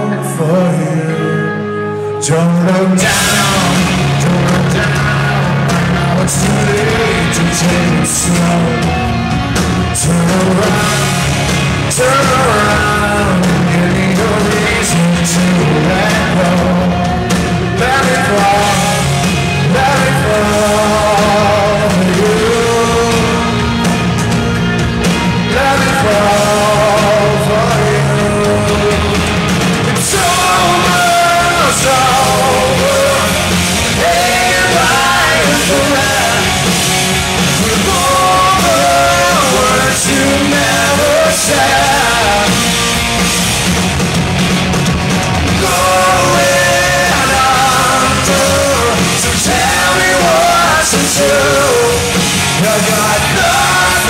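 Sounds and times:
man singing: 0:00.0 - 0:43.0, 0:45.4 - 0:54.0
rock band playing: 0:00.0 - 0:54.0.

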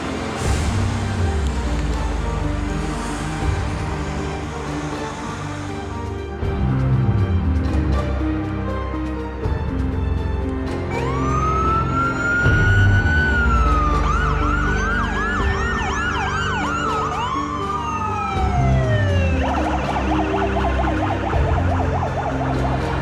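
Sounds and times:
background music: 0:00.0 - 0:23.0
emergency siren wailing and yelping: 0:10.9 - 0:23.0
second siren gliding: 0:10.9 - 0:23.0.

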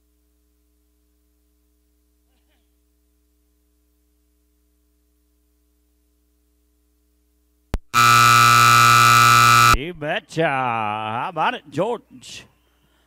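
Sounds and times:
faint hum: 0:00.0 - 0:10.0
loud steady electric buzzer: 0:07.8 - 0:09.8.

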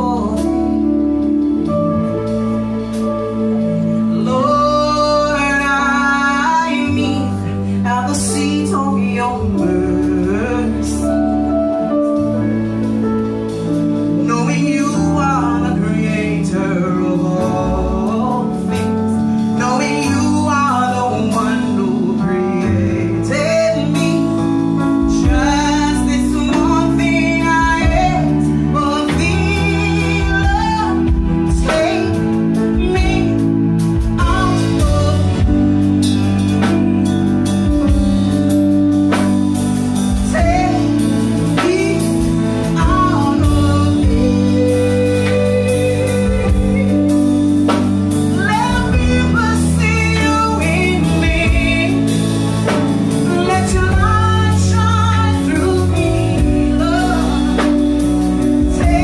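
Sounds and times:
woman singing gospel song: 0:00.0 - 0:01.1, 0:04.1 - 0:11.6, 0:14.2 - 0:36.6, 0:40.0 - 0:59.0
keyboards: 0:00.0 - 0:59.0
drum kit with cymbals: 0:23.3 - 0:59.0.

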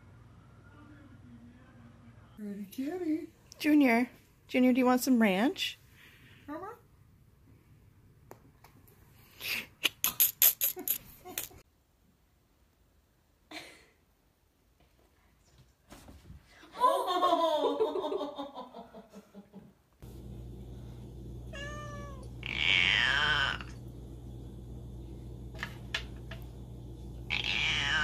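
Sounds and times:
cats meowing: 0:21.5 - 0:23.8, 0:27.2 - 0:28.0.

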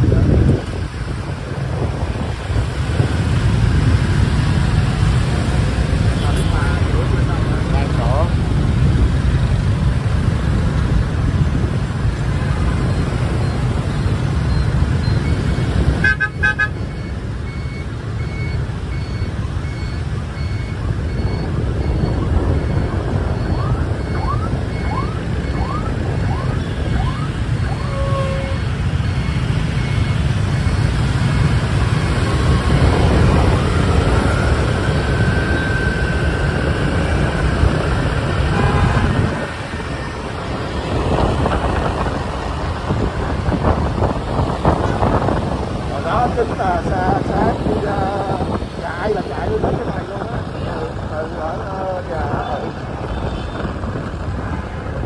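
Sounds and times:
traffic engines and road noise: 0:00.0 - 0:55.0
evenly repeating beep: 0:12.9 - 0:31.5.

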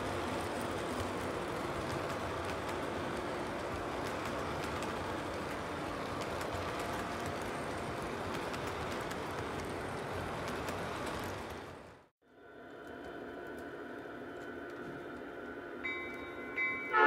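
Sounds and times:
model train wheels rumbling on rails: 0:00.0 - 0:12.1.

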